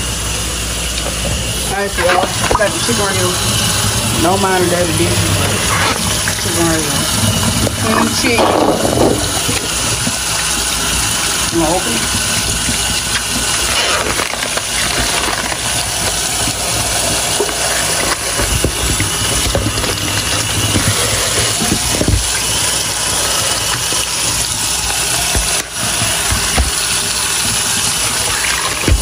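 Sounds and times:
tap running into metal sink: 7.5 - 29.0
plastic wrap and foam tray handled: 13.6 - 22.2.

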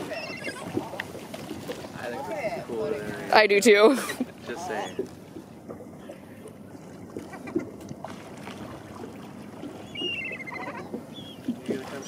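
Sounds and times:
gull call: 0.0 - 0.7, 9.8 - 11.4
boat low rumble: 0.0 - 12.0
water washing: 0.0 - 12.0.

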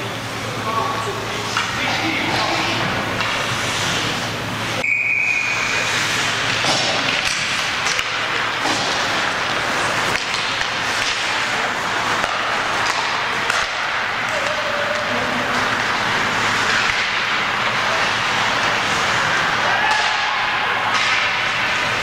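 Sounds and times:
hockey sticks or puck clacking: 1.5 - 3.9, 5.4 - 22.0
skates hissing on ice: 2.6 - 4.8, 5.4 - 19.6.

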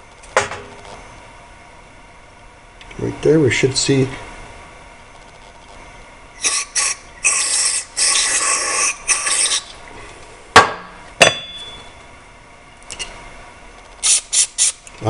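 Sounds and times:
sharp knocks: 10.6 - 11.7.

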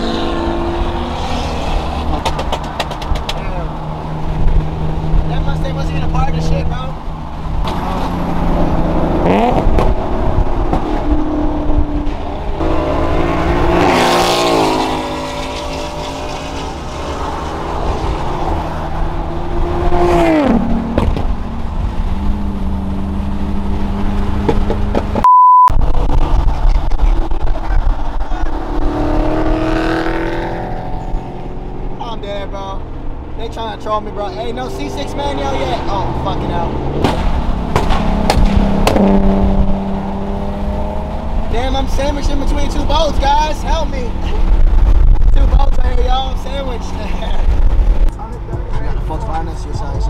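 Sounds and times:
car engines accelerating: 0.0 - 25.2, 25.8 - 50.0
road noise: 0.0 - 50.0
loud steady beep: 25.2 - 25.8.

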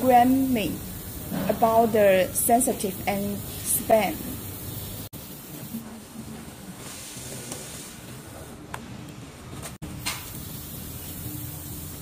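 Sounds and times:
steady hiss: 0.0 - 6.0, 9.9 - 12.0.

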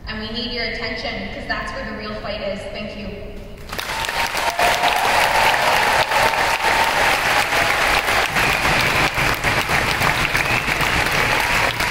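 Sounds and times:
large audience applauding: 3.7 - 11.9.

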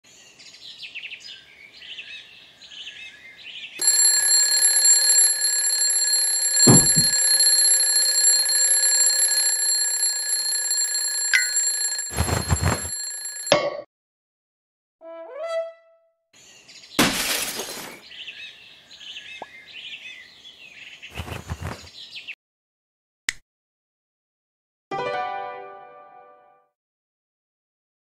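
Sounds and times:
alarm clock ringing: 3.8 - 13.5
thumps: 6.2 - 8.6
birds chirping: 18.0 - 22.3.

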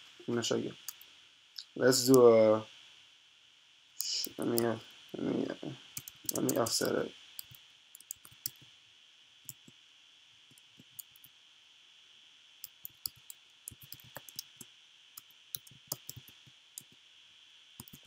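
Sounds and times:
keyboard keys clicking: 6.0 - 8.6, 12.6 - 14.6, 15.6 - 16.9, 17.8 - 18.0.

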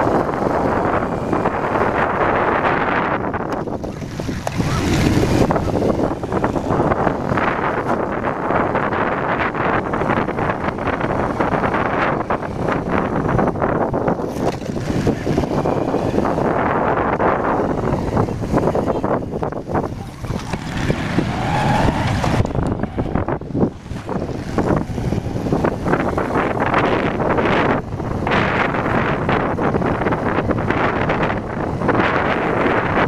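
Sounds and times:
motorcycle engine running: 0.0 - 33.0
wind buffeting microphone: 0.0 - 33.0.

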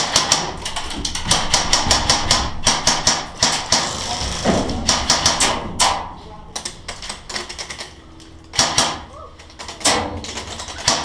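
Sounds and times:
airsoft gunfire: 0.0 - 0.6, 1.2 - 4.1, 4.8 - 6.0, 8.5 - 9.1, 9.8 - 11.0.

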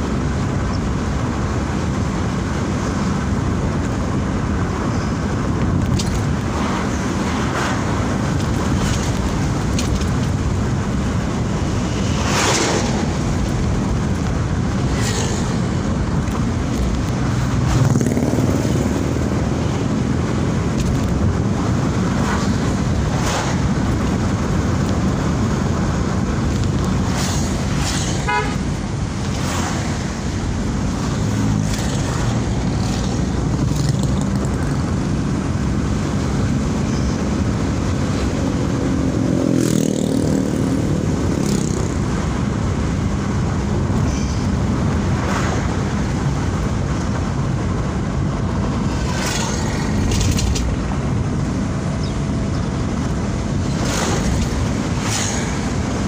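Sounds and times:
car horn toot: 28.2 - 28.7.

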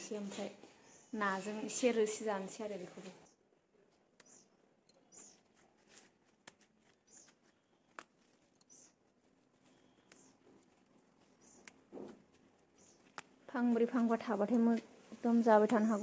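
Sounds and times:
leaves being handled: 5.1 - 16.0.

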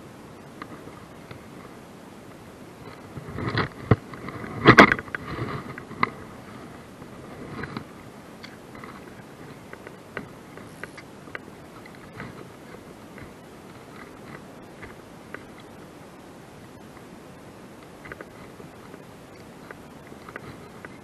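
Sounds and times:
rustling and scraping: 2.8 - 15.9, 17.8 - 21.0.

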